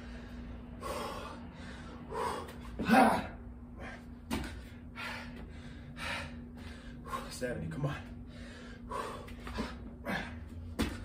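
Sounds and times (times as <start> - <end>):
man breathing hard: 0.0 - 11.0
man grunting: 2.8 - 4.0, 10.0 - 10.5.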